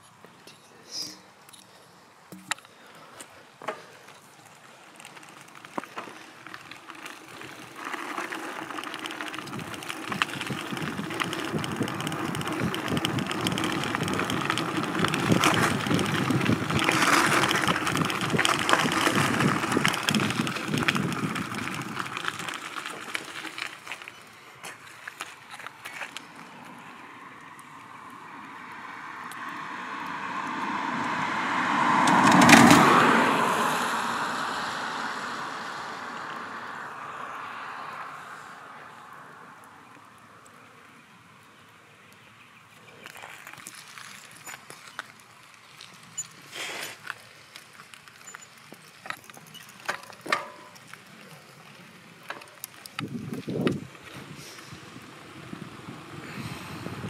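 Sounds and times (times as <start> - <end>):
bicycle rattling over road: 1.1 - 57.0
wind buffeting microphone: 7.0 - 23.7, 52.9 - 57.0
car tyres hissing on wet road: 29.6 - 39.2, 46.4 - 47.4, 54.2 - 57.0.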